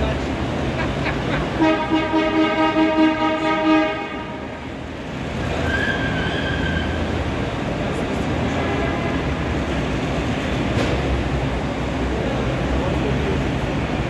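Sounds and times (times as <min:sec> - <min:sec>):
vehicle horn blast: 0:01.6 - 0:04.5, 0:08.5 - 0:09.3.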